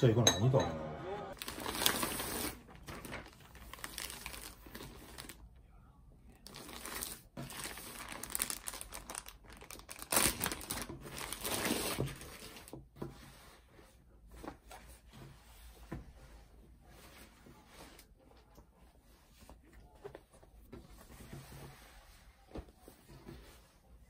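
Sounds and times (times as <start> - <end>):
plastic bag crinkling: 1.4 - 5.4, 6.4 - 12.3.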